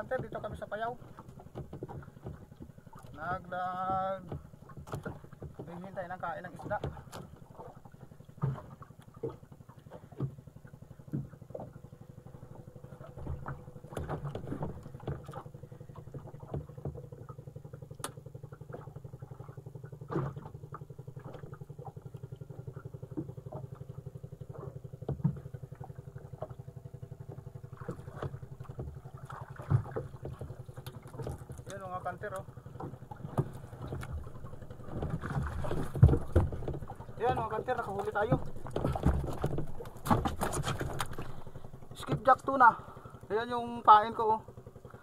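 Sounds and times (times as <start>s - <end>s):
small engine droning: 0.0s - 45.0s
knocks against boat hull: 1.5s - 2.8s, 24.5s - 25.5s, 34.8s - 41.3s.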